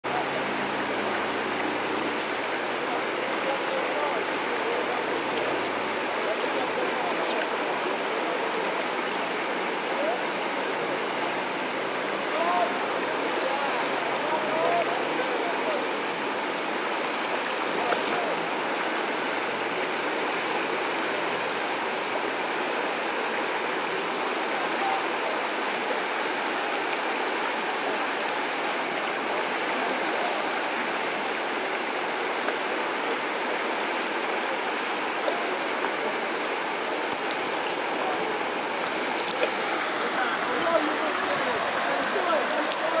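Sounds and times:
river rushing over rapids: 0.0 - 43.0.

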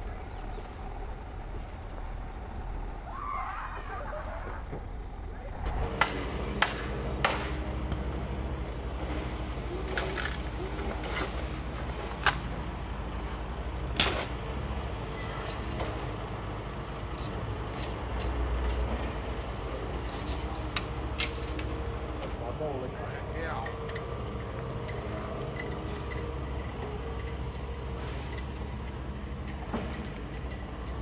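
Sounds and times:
steady low rumble: 0.0 - 31.0
machete splitting bamboo: 6.0 - 7.6, 12.2 - 12.5.

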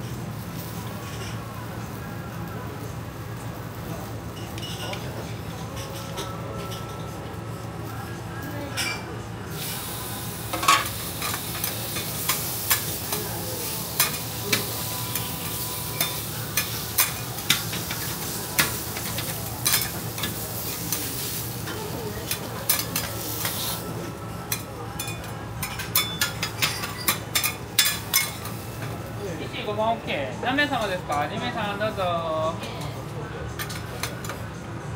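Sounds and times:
food sizzling on a griddle: 0.3 - 5.3, 8.8 - 29.4.

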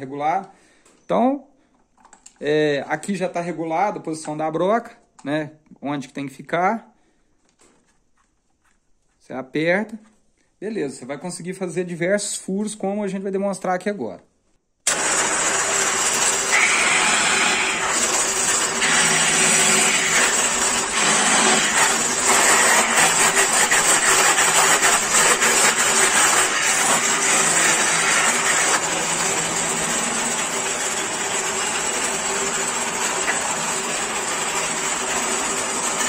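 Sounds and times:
drill bit boring into wood: 14.9 - 36.0
drill press motor hum: 14.9 - 36.0.

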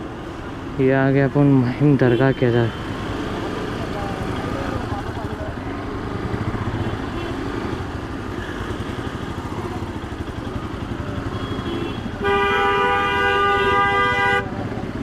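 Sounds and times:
motorcycle engine running: 2.8 - 13.8
vehicle horn: 11.3 - 14.6.

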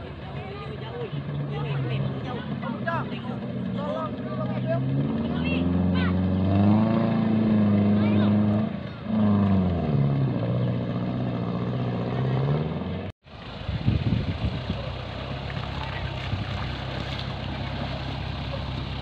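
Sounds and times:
engine idling low: 0.0 - 6.5, 13.3 - 19.0
off-road engine revving: 0.0 - 19.0.

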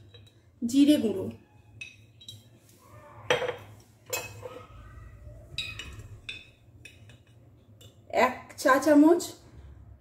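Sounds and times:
teaspoon clinking against dishes: 0.0 - 0.5, 1.7 - 2.6, 3.3 - 4.7, 5.5 - 8.1.

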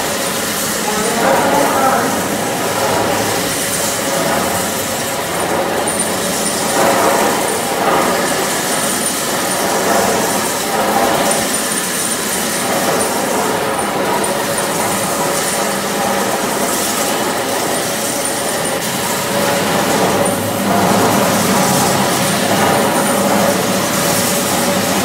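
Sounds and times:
floor grinding machine running: 0.0 - 25.0.

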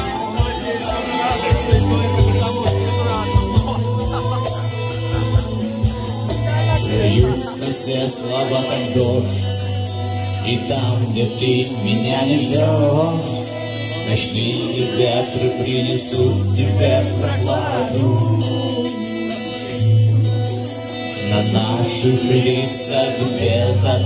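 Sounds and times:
electric bass: 0.0 - 24.0
man singing: 0.0 - 24.0
strummed acoustic guitar: 0.0 - 24.0.

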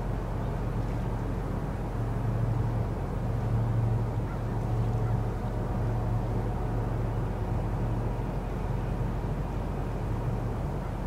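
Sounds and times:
boat diesel engine droning: 0.0 - 11.0
faint wash of noise: 0.0 - 11.0.

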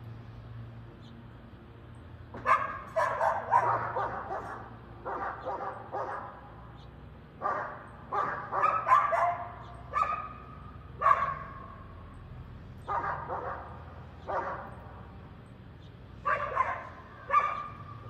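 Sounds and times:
dog barking and yipping: 2.4 - 6.4, 7.4 - 11.8, 12.8 - 14.7, 16.2 - 17.9.

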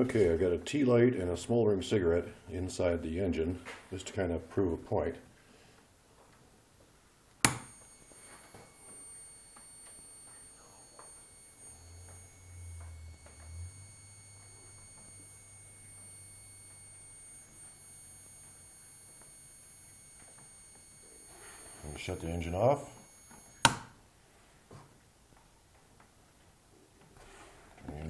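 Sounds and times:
sharp click: 7.4 - 7.8
high-pitched electrical whine: 7.5 - 24.0.

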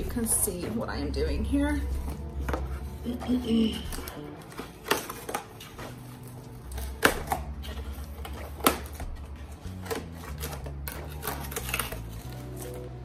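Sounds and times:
soft background music: 0.0 - 13.0
scissors snipping through tape: 3.8 - 13.0.

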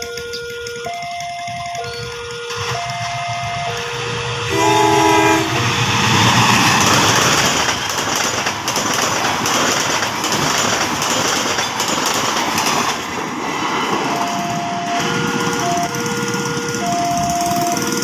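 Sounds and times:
clacks at rail joints: 0.0 - 4.0, 5.5 - 18.0
train wheels rushing on rails: 0.0 - 18.0
locomotive horn blast: 1.6 - 6.0, 14.3 - 18.0.

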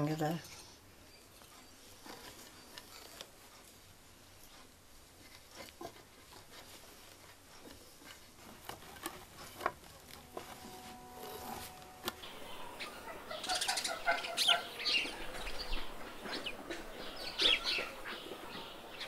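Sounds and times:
light clicks of wooden loom: 0.4 - 12.3.

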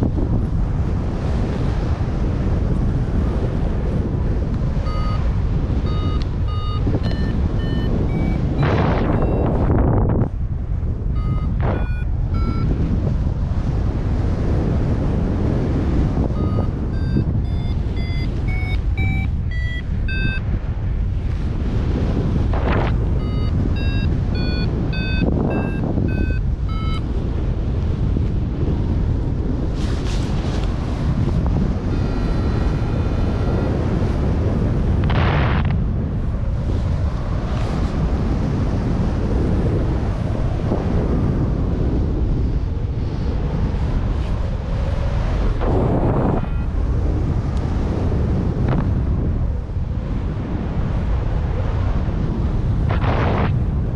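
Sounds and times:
wind buffeting microphone: 0.0 - 53.9
thin steady tone: 4.8 - 9.7, 11.1 - 12.8, 16.3 - 20.5, 23.1 - 27.1
variometer beeping: 4.8 - 9.8, 11.0 - 13.0, 16.3 - 20.6, 23.0 - 27.2, 31.8 - 34.3, 46.1 - 47.0.

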